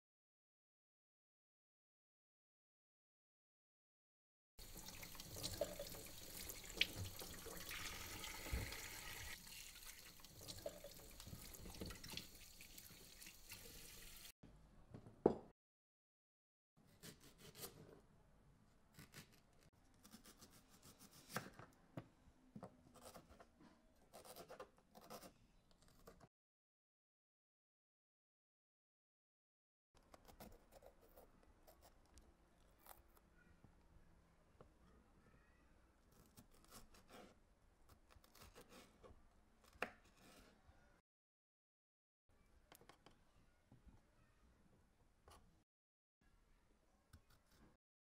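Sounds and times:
tap running into sink: 6.7s - 9.3s
knife slicing on cutting board: 17.0s - 17.8s.

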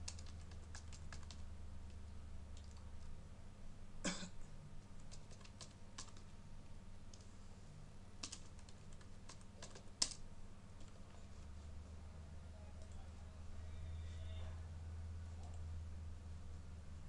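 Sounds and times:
typing on a computer keyboard: 0.0s - 3.1s, 4.8s - 6.3s, 8.2s - 10.2s
low steady hum: 0.0s - 17.0s.

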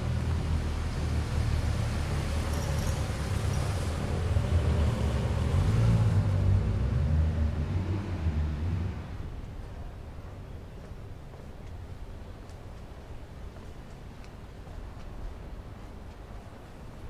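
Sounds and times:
vehicle engine rumble passing: 0.0s - 10.1s.

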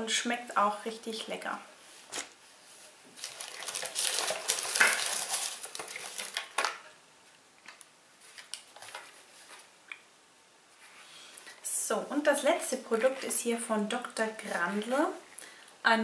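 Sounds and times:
packaging rustling and clattering: 3.1s - 7.0s, 7.7s - 9.7s.

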